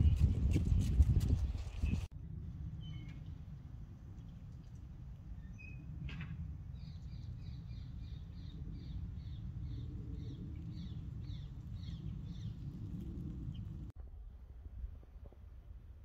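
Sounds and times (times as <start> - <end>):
steady low rumble: 0.0 - 14.2.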